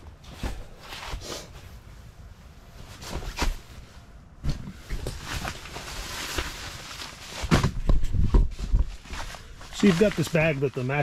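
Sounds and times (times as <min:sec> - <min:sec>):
nylon fabric rustling: 0:08.5 - 0:11.0.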